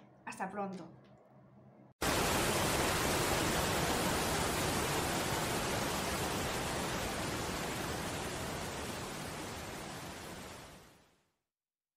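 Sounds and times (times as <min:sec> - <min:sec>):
waterfall rushing water: 0:02.0 - 0:11.0.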